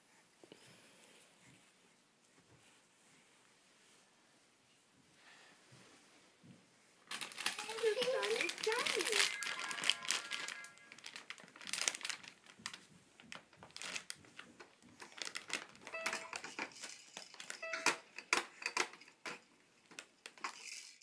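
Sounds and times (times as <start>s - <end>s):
short flat tones: 15.9s - 16.4s, 17.6s - 18.0s.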